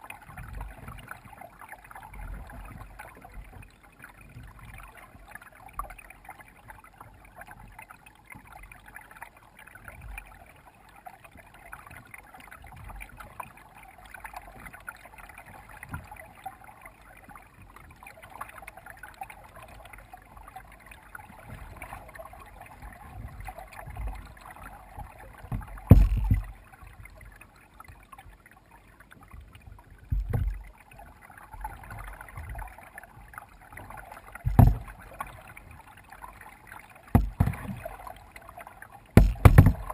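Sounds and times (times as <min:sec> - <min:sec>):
paddle splashing water: 0:00.0 - 0:39.9
dull low thumps: 0:25.5 - 0:26.6, 0:30.1 - 0:30.6, 0:34.5 - 0:34.9, 0:37.2 - 0:37.8, 0:39.2 - 0:39.9.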